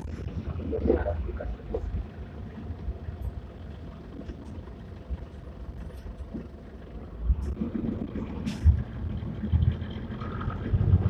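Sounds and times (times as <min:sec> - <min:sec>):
diesel bus idling: 0:00.0 - 0:11.0.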